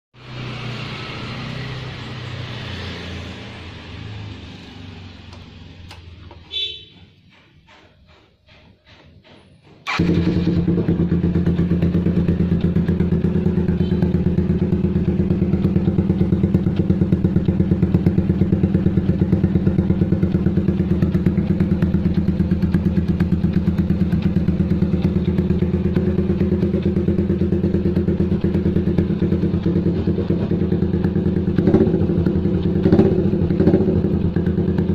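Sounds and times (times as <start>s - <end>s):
motorcycle engine idling: 9.8s - 34.9s.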